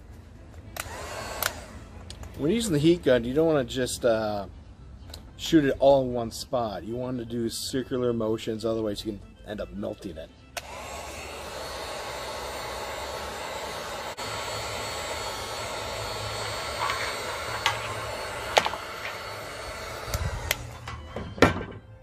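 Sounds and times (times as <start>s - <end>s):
heat gun blowing: 0.7s - 2.6s, 10.5s - 21.6s
sharp clicks: 20.1s - 20.7s.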